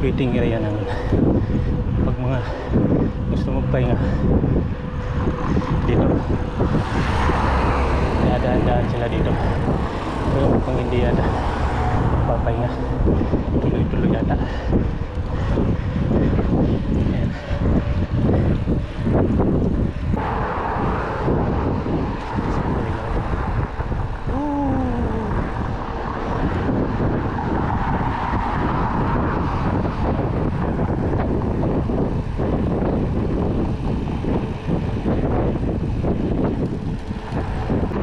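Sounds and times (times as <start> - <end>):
thin steady whine: 0.0 - 27.8
wind and road rumble: 0.0 - 38.0.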